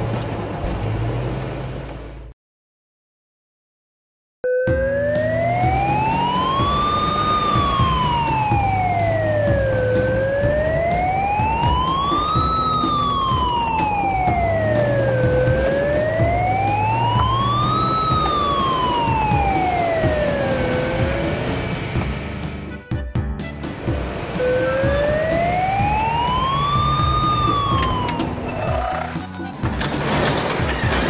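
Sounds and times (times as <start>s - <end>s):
police siren wailing: 4.4s - 21.8s, 24.4s - 29.4s.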